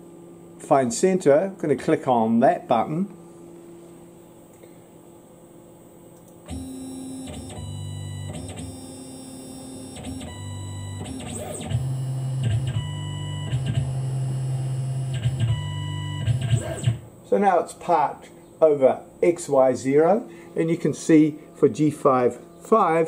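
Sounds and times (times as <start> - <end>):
mill axis motors whining: 6.4 - 17.1.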